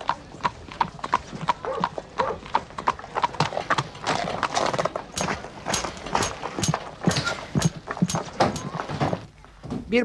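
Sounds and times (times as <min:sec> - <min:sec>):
horse hooves clopping: 0:00.0 - 0:09.8
boots stepping on boards: 0:05.0 - 0:09.8.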